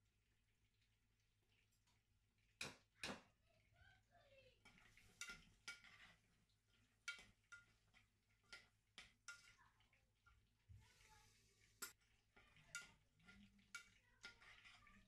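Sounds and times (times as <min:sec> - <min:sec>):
metal spoon clinking on pot: 0:04.6 - 0:10.4, 0:11.8 - 0:15.0.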